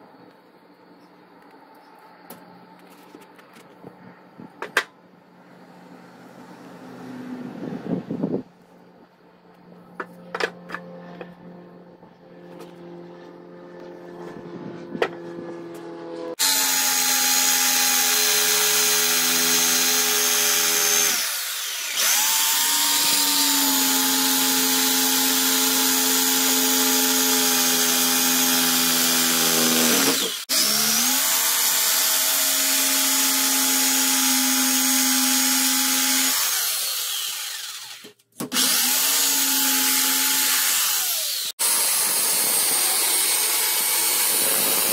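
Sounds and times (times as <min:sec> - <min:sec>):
jigsaw cutting wood: 0:16.3 - 0:44.9.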